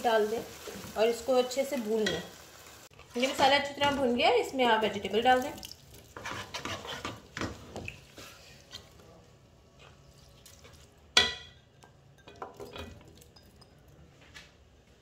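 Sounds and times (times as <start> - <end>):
spatula stirring vegetables in pot: 0.0 - 11.3.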